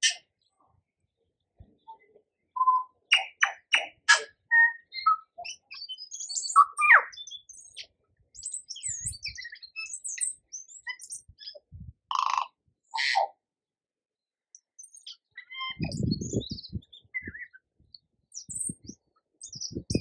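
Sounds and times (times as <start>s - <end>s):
bird singing with whistles and trills: 1.8s - 11.9s, 14.6s - 20.0s.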